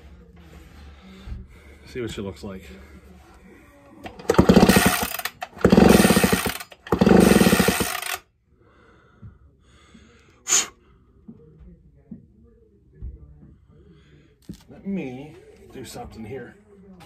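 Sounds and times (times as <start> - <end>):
chainsaw recoil starter pulls: 4.1 - 8.2
engine spinning over whir: 4.1 - 8.2.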